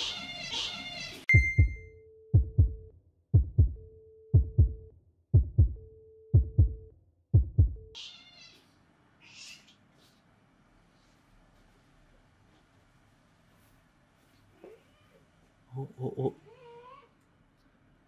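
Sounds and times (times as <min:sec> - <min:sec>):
cat meowing: 0:00.0 - 0:01.2, 0:08.0 - 0:09.8, 0:16.5 - 0:17.2
heartbeat thumps: 0:01.4 - 0:07.9.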